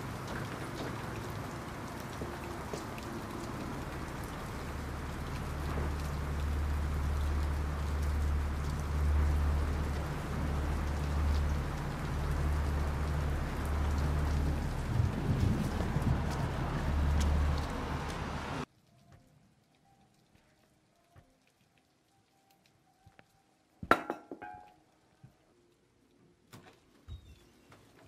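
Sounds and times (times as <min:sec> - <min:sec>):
rain on wet paving: 0:00.0 - 0:25.0
low rumble: 0:03.3 - 0:18.6.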